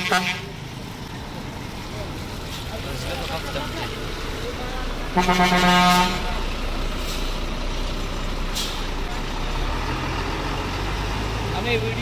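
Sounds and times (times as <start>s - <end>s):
bus horn blast: 0.0s - 0.6s, 5.1s - 6.4s
bus engines idling: 0.0s - 12.0s
short hiss: 8.5s - 8.9s.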